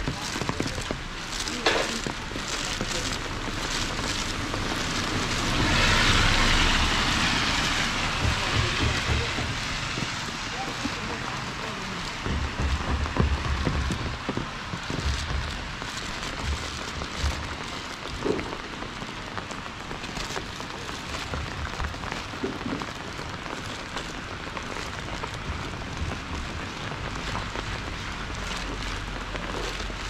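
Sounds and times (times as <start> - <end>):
low thuds: 0.0 - 18.8
steady rain falling: 0.0 - 30.0.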